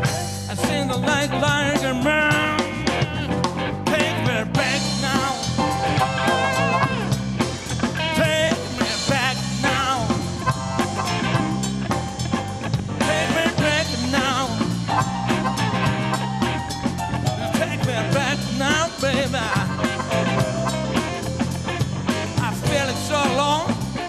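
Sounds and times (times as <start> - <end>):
blues rock band playing: 0.0 - 24.0.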